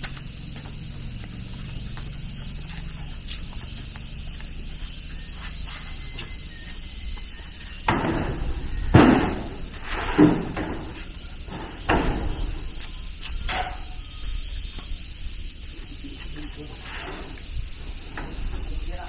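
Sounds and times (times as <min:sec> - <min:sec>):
knocks and thuds: 0:07.9 - 0:12.6.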